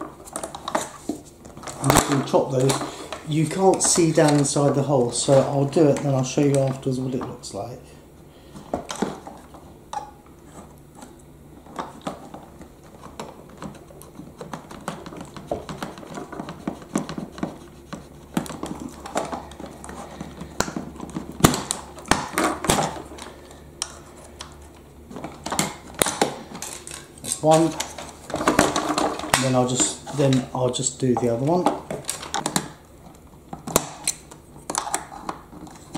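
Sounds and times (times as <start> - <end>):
chisel scraping plastic: 13.0 - 21.2.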